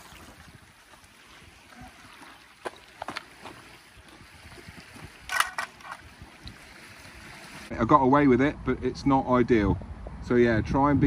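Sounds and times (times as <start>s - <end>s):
wind and water hiss: 0.0s - 11.0s
knocks and scrapes on rocks: 2.6s - 3.7s.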